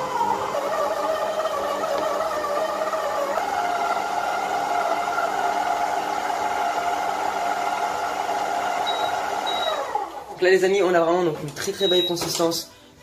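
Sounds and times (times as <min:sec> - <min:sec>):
stand mixer motor whining: 0:00.0 - 0:10.4.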